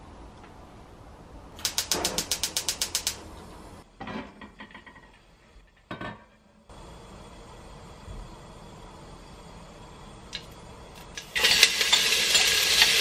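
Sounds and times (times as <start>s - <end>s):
gas stove igniter clicking: 1.6s - 3.2s
metal pot lid clanks: 11.2s - 13.0s.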